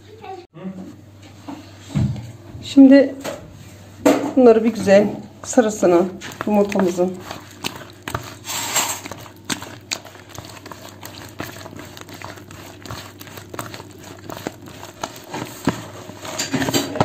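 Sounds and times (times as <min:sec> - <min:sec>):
dough mixing in a plastic bowl: 0:01.8 - 0:17.0.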